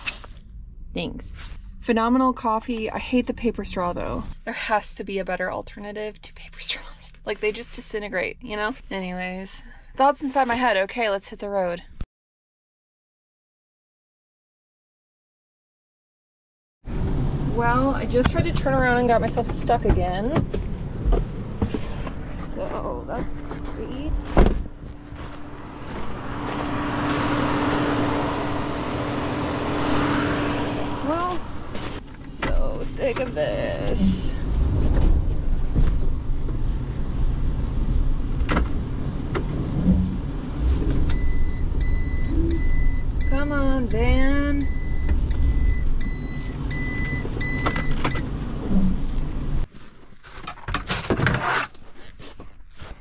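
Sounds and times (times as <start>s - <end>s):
van engine revving: 16.9s - 49.7s
sharp thump: 24.2s - 24.7s
electronic beeping: 44.6s - 48.0s
hard plastic clattering and scraping: 49.7s - 52.5s.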